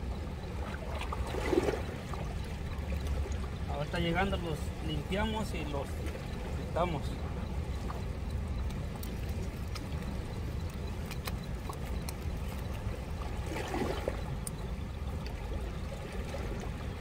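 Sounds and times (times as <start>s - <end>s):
sharp clicks: 8.6s - 12.7s.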